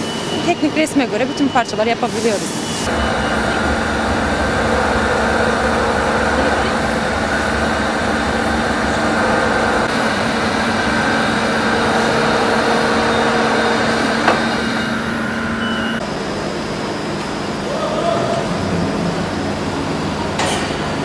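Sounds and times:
metalworking machines humming: 0.0 - 21.0
steady tones: 0.4 - 16.2.

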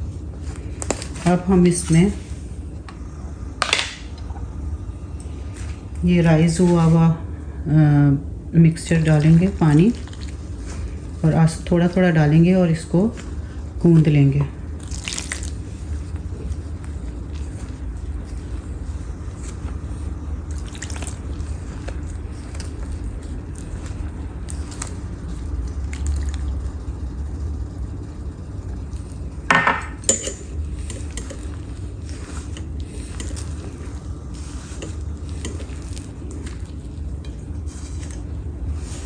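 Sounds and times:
hands squishing dough in bowl: 0.0 - 2.8, 8.6 - 27.0, 30.0 - 39.0.

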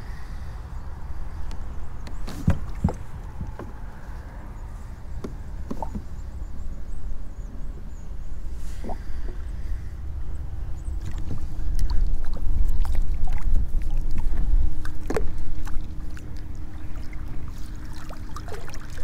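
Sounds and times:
kayak knocks: 2.2 - 3.8, 5.2 - 6.1
small water splashes: 11.0 - 19.0.

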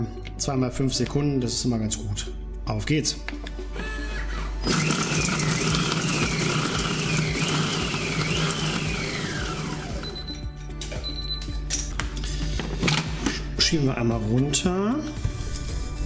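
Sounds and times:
food processor motor whining: 3.8 - 10.3.

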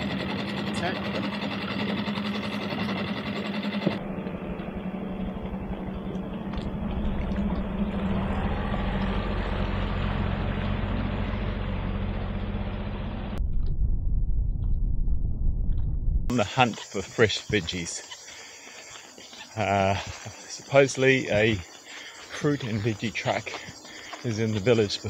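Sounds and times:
boat engine running: 0.0 - 13.4
low rumble: 4.0 - 16.4.

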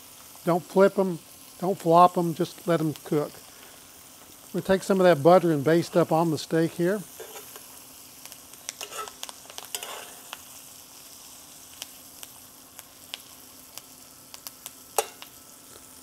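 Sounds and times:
steaks sizzling in a skillet: 0.0 - 16.0
metal spoon scraping a pan: 7.1 - 7.7, 8.8 - 10.3, 15.0 - 15.2.

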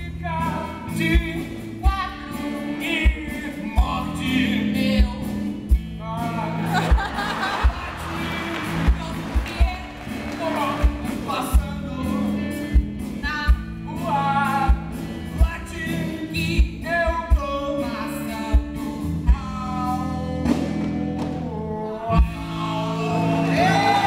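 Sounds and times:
instrumental accompaniment: 0.2 - 24.0
people singing together: 22.1 - 24.0.

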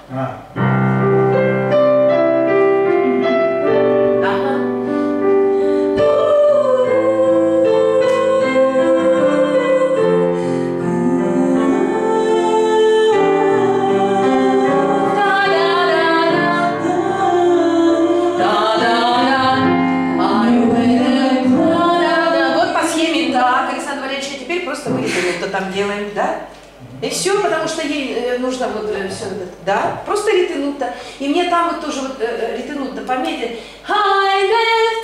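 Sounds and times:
digital piano: 0.0 - 30.3
woman singing a slow ballad: 5.9 - 23.4.

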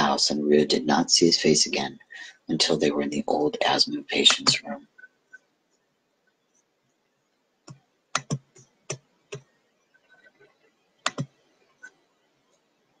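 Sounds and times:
computer clicks and taps: 7.6 - 9.5, 11.0 - 12.0.

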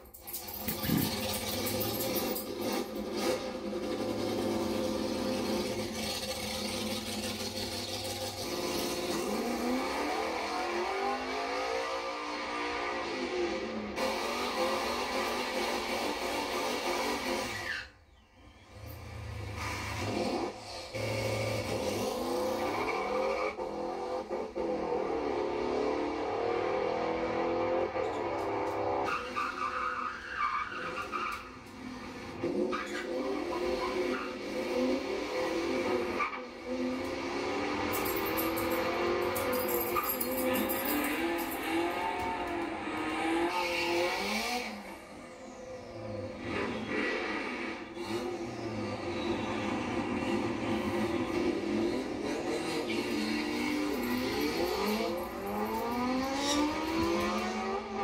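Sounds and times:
drag car engine revving: 0.2 - 17.9, 18.7 - 58.0
tyres squealing in a burnout: 14.0 - 58.0.

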